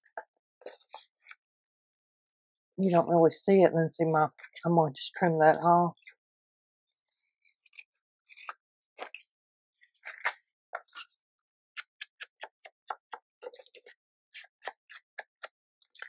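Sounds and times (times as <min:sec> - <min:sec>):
scissors cutting paper: 0:07.6 - 0:09.2.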